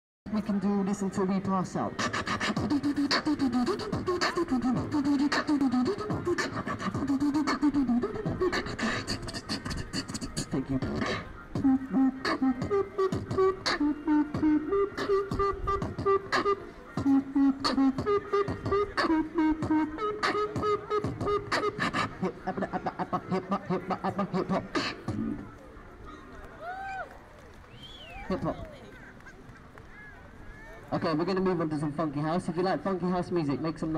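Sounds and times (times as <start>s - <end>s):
beatboxing mouth clicks: 2.0s - 25.4s
short sung notes: 2.0s - 25.4s
hummed melody: 2.1s - 25.4s.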